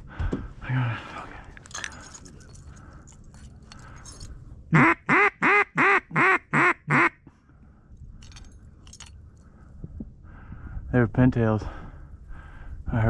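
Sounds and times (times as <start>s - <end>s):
duck call quacks: 4.7s - 7.2s.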